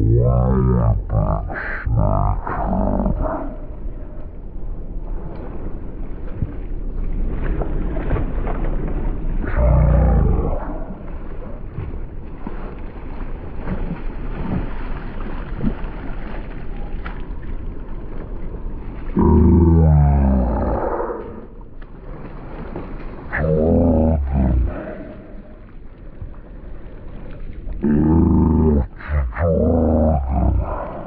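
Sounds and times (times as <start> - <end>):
wind rumbling on microphone: 2.4 - 19.6.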